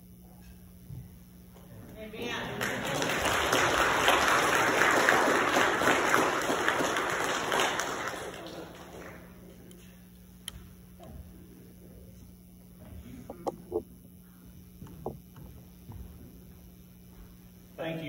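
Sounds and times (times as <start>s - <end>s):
steady low hum: 0.0s - 18.0s
congregation applauding: 2.3s - 9.6s.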